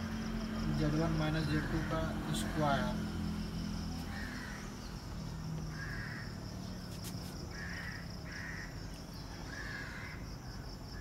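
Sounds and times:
bird harsh calls: 4.0s - 6.8s, 7.5s - 10.3s.

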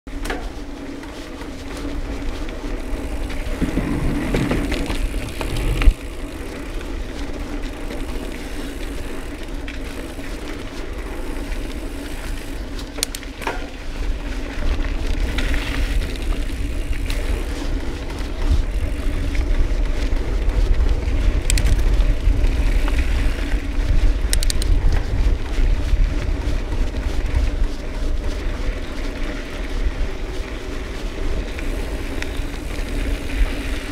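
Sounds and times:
bike clicks and rattles: 0.1s - 33.9s
bike tyres rumbling on dirt: 0.1s - 33.9s
wind on microphone: 2.8s - 6.4s, 14.8s - 28.8s.

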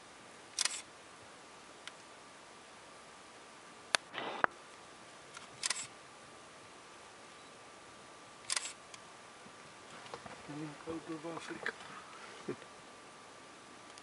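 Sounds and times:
light hiss: 0.0s - 14.0s
camera whir: 0.4s - 2.2s, 3.9s - 6.0s, 8.3s - 14.0s
camera clicks: 0.6s - 0.9s, 5.3s - 5.9s, 8.4s - 9.0s.

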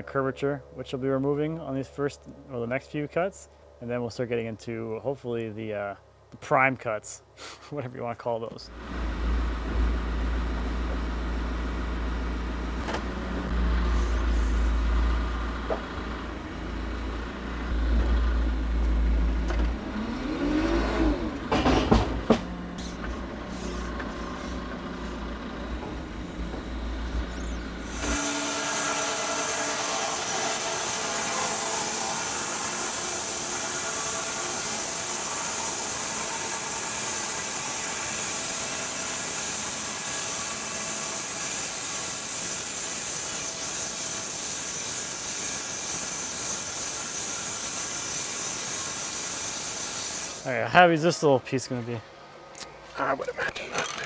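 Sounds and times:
engine low rumble: 0.0s - 6.3s, 8.5s - 28.1s
electric motor: 8.9s - 50.4s
bandsaw cutting log: 19.9s - 50.4s.

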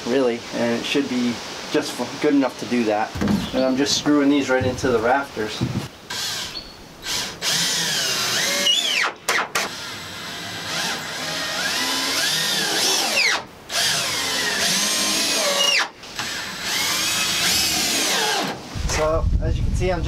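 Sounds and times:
cordless drill driving screws: 6.1s - 18.6s.

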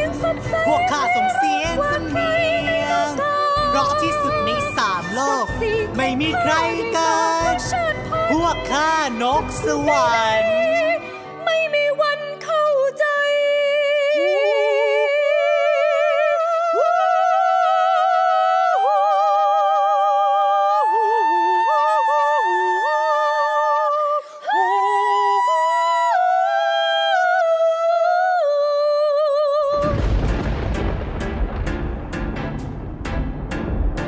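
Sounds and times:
wordless high singing voices: 12.4s - 30.3s.

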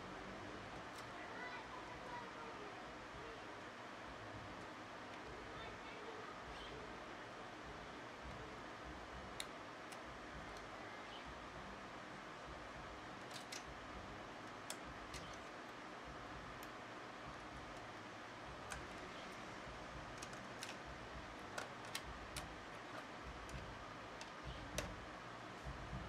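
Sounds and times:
small plastic and metal parts clicking: 13.2s - 13.7s, 14.4s - 15.8s, 17.4s - 25.0s.

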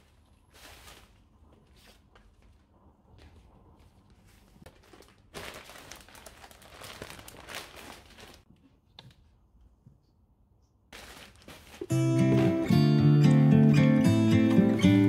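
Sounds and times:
plastic bags crinkling: 4.7s - 8.5s, 11.0s - 15.0s.

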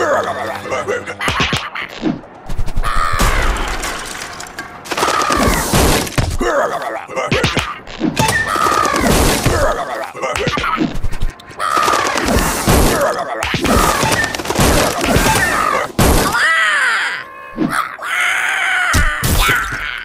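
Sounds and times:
cartoon squeals: 8.2s - 9.1s.

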